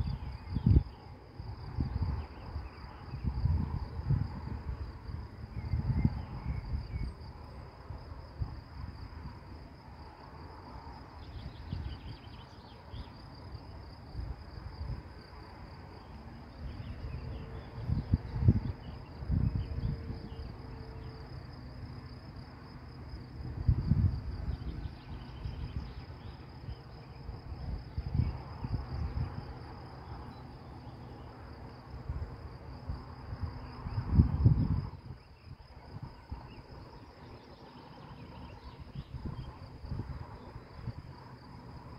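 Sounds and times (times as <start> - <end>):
wind buffeting microphone: 0.0 - 9.6, 11.2 - 12.4, 13.0 - 30.4, 31.9 - 37.4, 38.0 - 41.9
crickets chirping: 0.0 - 41.9.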